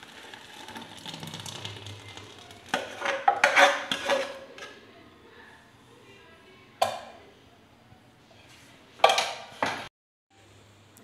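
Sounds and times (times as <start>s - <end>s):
custard pouring: 0.0s - 4.0s
metal clanks and scrapes: 2.7s - 4.8s.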